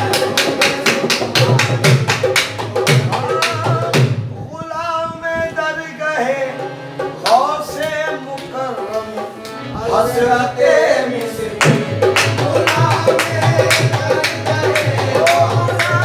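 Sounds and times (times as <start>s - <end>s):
person singing devotional song: 4.6s - 16.0s.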